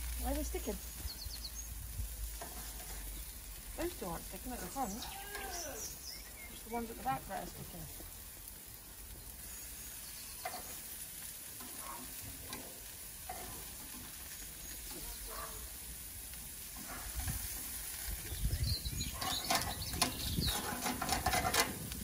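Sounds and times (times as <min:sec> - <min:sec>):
meat sizzling on grill: 0:00.0 - 0:22.0
metal tongs scraping and clicking: 0:13.3 - 0:14.0, 0:19.2 - 0:21.9.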